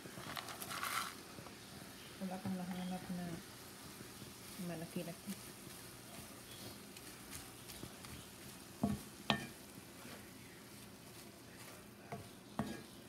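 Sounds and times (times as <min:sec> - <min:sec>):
food sizzling in skillet: 0:00.0 - 0:13.0
wooden spatula stirring: 0:00.0 - 0:13.0
spatula knocking against pan: 0:08.8 - 0:09.6.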